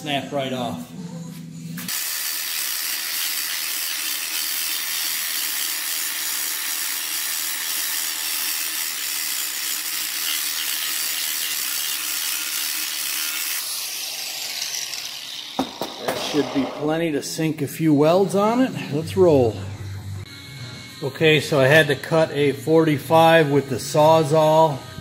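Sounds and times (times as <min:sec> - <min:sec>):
angle grinder grinding steel: 0:01.9 - 0:17.6.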